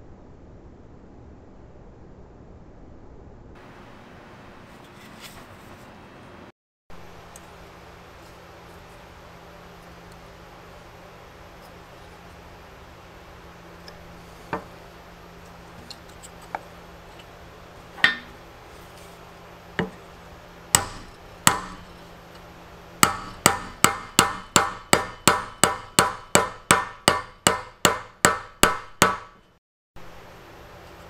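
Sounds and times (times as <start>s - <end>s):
hammer striking wood: 18.0s - 18.4s, 19.8s - 20.0s, 20.7s - 22.0s, 23.0s - 29.5s.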